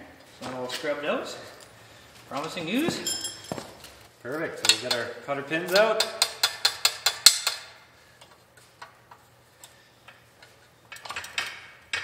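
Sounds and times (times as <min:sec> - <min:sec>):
steel tools clinking on metal: 0:02.9 - 0:03.6.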